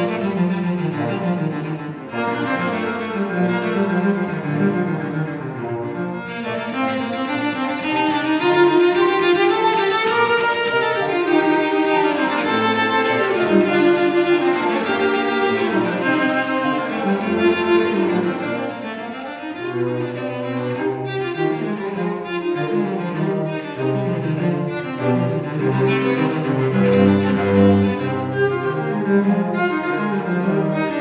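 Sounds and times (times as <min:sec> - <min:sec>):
cellos playing a bowed duet: 0:00.0 - 0:31.0.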